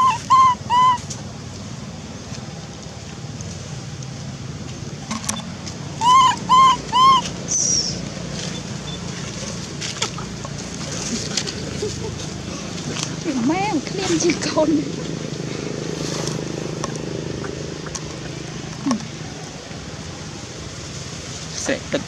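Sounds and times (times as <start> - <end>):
baby monkey cooing: 0.0 - 1.0, 6.0 - 7.9
high falling chirp: 0.0 - 1.0, 6.0 - 8.0.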